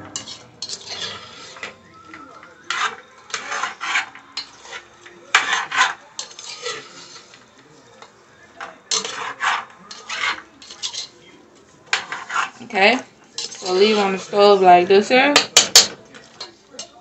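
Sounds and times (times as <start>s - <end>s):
utensil scraping a pot: 0.0s - 11.2s, 11.8s - 17.0s.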